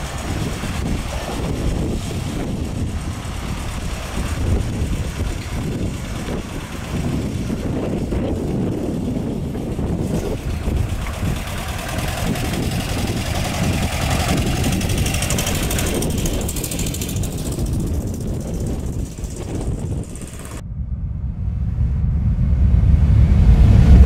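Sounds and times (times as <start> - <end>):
van engine running: 0.0 - 20.6
low swelling sound: 0.0 - 24.0
wind buffeting microphone: 0.0 - 24.0.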